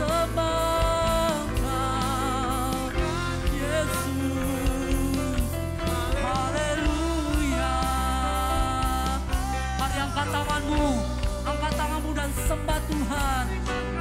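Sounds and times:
band accompaniment with bass: 0.0 - 14.0
person singing: 0.0 - 14.0.

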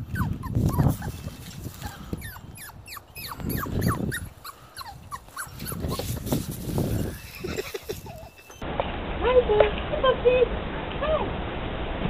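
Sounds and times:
puppy whimpering: 0.0 - 8.6.

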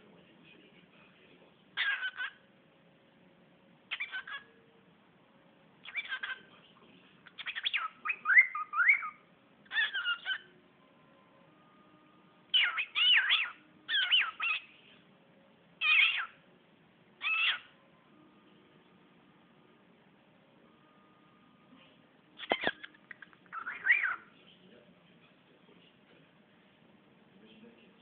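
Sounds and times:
cockatiel chattering and whistling: 1.8 - 2.4, 3.9 - 4.5, 5.8 - 6.5, 7.2 - 10.5, 12.5 - 14.7, 15.8 - 16.4, 17.2 - 17.7, 22.4 - 24.3.

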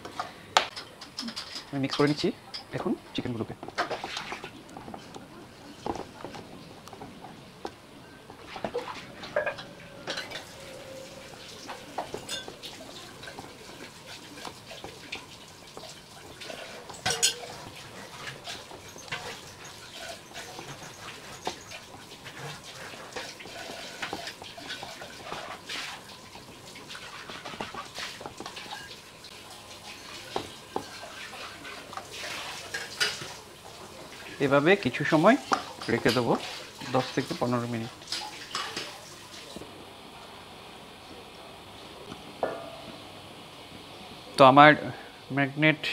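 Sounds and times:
clinks against steel bowl: 12.0 - 12.6, 16.9 - 17.6.

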